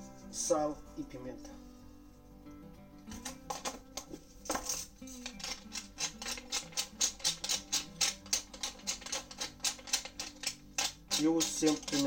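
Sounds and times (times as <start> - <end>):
soft guitar music: 0.0 - 12.0
pepper mill grinding: 3.2 - 12.0.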